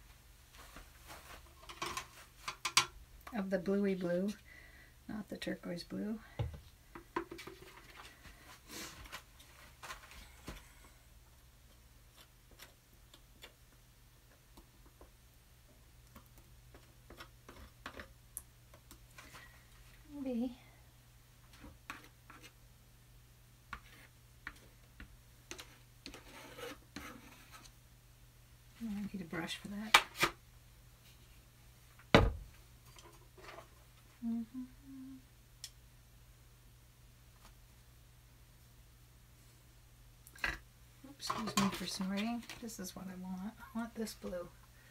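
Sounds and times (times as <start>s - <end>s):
low steady hum: 0.0s - 44.9s
woman humming: 34.1s - 35.3s.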